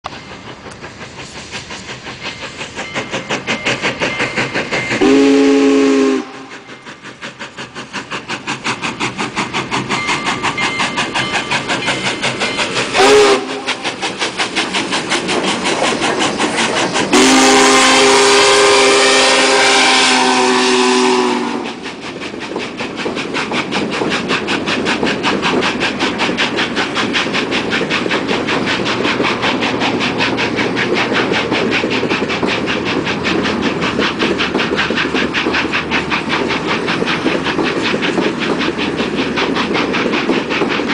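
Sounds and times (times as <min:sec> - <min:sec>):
steam locomotive exhaust beats: 0:00.0 - 0:40.9
steam whistle blasts: 0:05.0 - 0:06.6, 0:12.9 - 0:13.8, 0:17.1 - 0:21.8.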